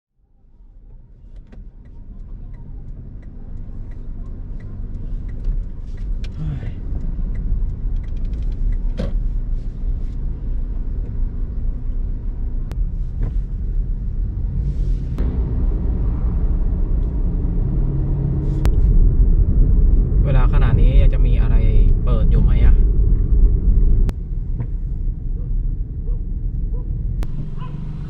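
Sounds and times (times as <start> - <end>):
car engine and road rumble: 0.1 - 28.0
light regular ticking: 1.4 - 11.3.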